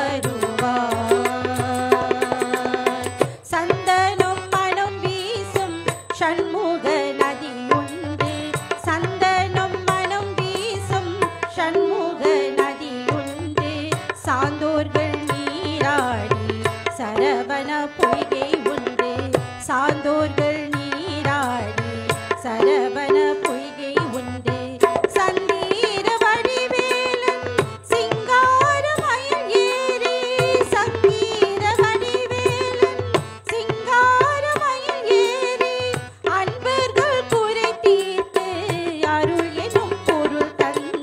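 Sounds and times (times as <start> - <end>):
harmonium: 0.0 - 41.0
person singing: 0.0 - 41.0
tabla drumming: 0.0 - 41.0.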